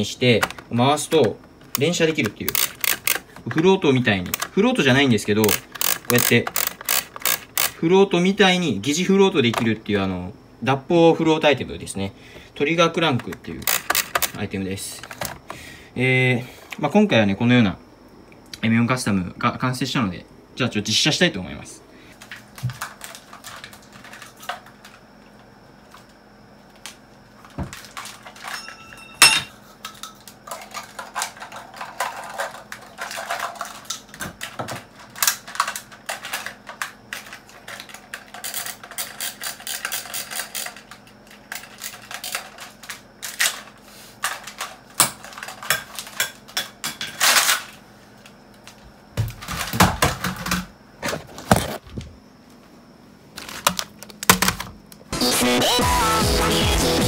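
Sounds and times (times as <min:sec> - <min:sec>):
faint steady hum: 0:00.0 - 0:57.0
toy rifle clicking and rattling: 0:01.7 - 0:03.3, 0:04.3 - 0:04.5, 0:05.4 - 0:07.8, 0:13.6 - 0:14.4, 0:35.2 - 0:43.6.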